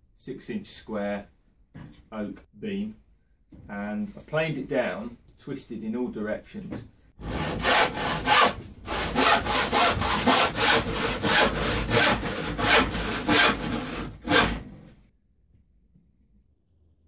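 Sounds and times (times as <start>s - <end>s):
handsaw cutting wood: 7.2s - 14.8s.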